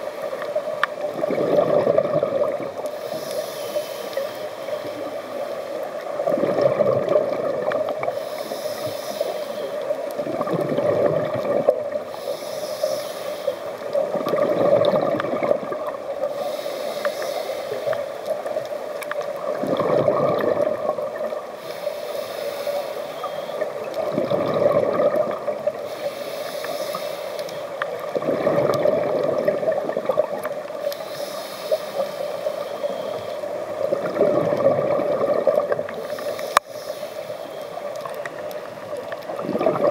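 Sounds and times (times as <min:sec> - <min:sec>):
bubbling exhalations underwater: 0:01.1 - 0:02.8, 0:06.2 - 0:08.0, 0:10.2 - 0:12.0, 0:14.1 - 0:16.0, 0:19.5 - 0:21.2, 0:23.9 - 0:25.8, 0:28.1 - 0:30.4, 0:33.9 - 0:36.0, 0:39.3 - 0:39.9
hissing regulator inhalations: 0:02.7 - 0:06.3, 0:07.9 - 0:10.2, 0:11.9 - 0:14.2, 0:16.1 - 0:19.5, 0:21.2 - 0:28.9, 0:30.5 - 0:34.0, 0:35.8 - 0:38.7.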